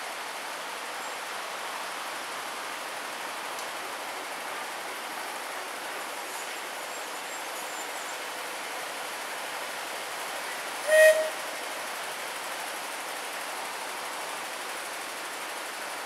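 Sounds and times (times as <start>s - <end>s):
steady hiss: 0.0s - 16.0s
locomotive whistle toot: 10.8s - 11.4s.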